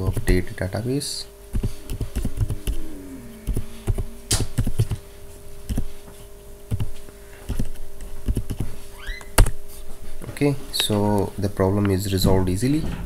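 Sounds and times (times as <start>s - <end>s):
steady hum: 0.0s - 13.0s
keyboard typing: 1.5s - 2.8s, 3.4s - 5.0s, 5.7s - 5.9s, 6.7s - 8.7s.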